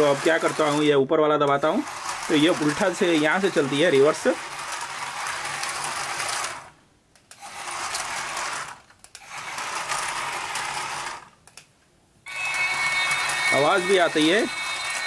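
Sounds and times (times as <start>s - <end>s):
toy train motor whirring: 0.0s - 11.6s, 12.3s - 15.0s
steady high tone: 12.2s - 15.0s.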